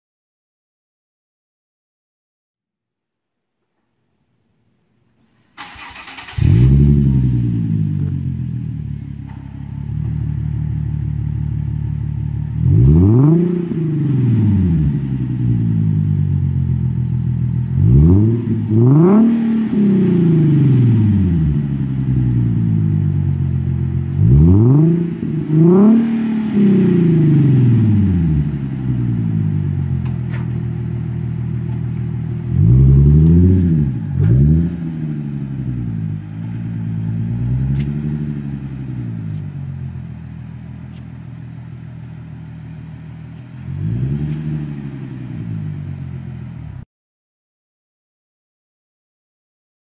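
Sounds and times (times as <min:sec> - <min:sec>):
car engine starting: 0:05.3 - 0:46.8
engine revving in throttle blips: 0:05.6 - 0:41.1, 0:43.2 - 0:46.8
car engine idling: 0:05.6 - 0:46.8.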